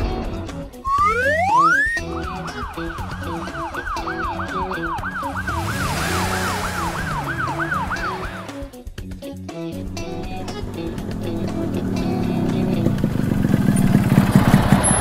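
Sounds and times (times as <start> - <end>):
background music: 0.0 - 13.6
ambulance siren wailing: 0.9 - 8.7.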